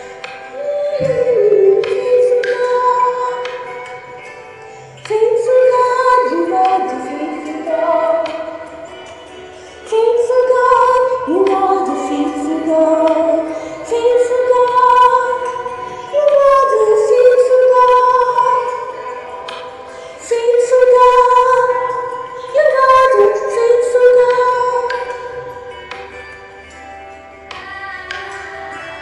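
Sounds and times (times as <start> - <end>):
woman singing worship song: 0.0 - 29.0.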